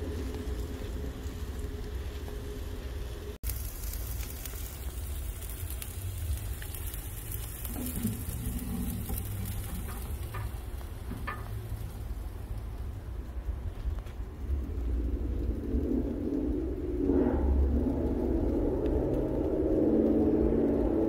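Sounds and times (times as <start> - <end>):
chicken sizzling on grill: 0.0 - 16.8
wind rumbling on microphone: 0.0 - 21.0.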